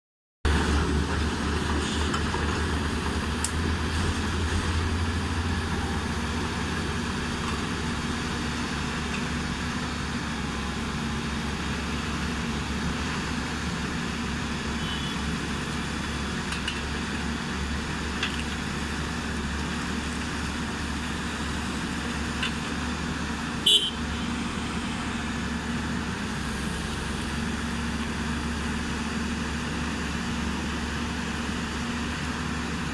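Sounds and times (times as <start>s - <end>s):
diesel engine idling: 20.2s - 30.1s.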